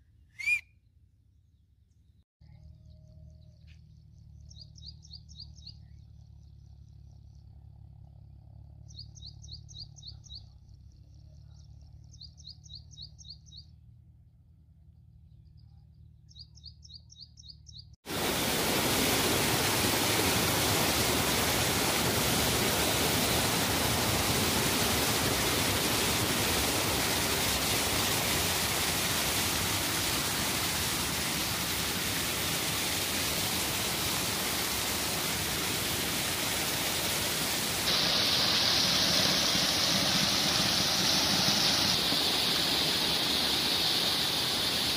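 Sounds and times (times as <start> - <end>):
rushing water: 18.1 - 44.9.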